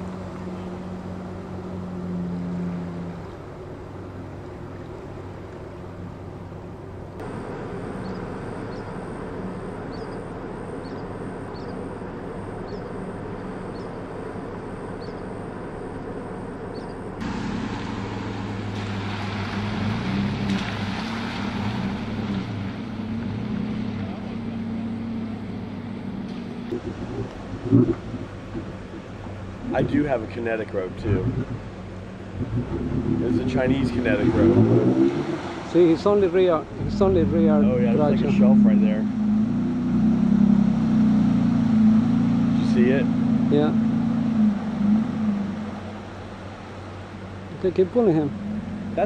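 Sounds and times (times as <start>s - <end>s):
truck engines running: 0.0s - 49.0s
water washing around vehicles: 0.0s - 49.0s
engine revving: 17.2s - 46.4s, 47.4s - 49.0s.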